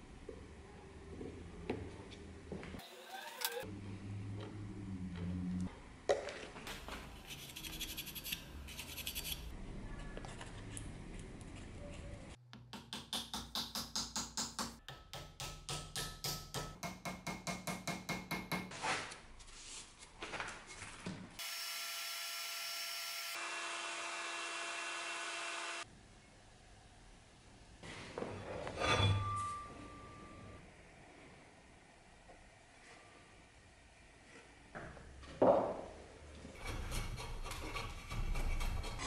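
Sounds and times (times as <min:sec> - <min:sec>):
chisel scraping wood: 0:36.6 - 0:39.0.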